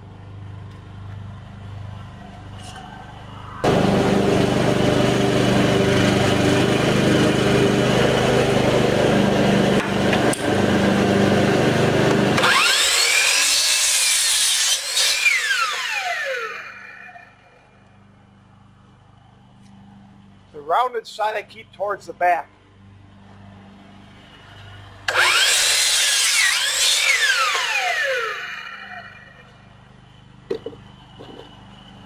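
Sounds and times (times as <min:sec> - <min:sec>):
saw blade winding down whine: 0:02.6 - 0:17.8, 0:25.0 - 0:29.8
saw cutting wood: 0:03.6 - 0:17.4, 0:25.1 - 0:29.5
miter saw running: 0:03.6 - 0:17.5, 0:25.1 - 0:29.5.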